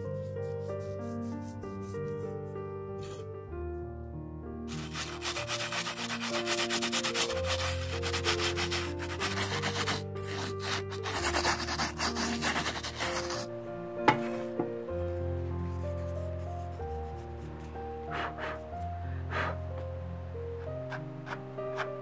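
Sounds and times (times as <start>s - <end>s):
soft background music: 0.0s - 22.0s
fingertips rubbing on canvas: 4.7s - 13.5s, 18.1s - 19.6s.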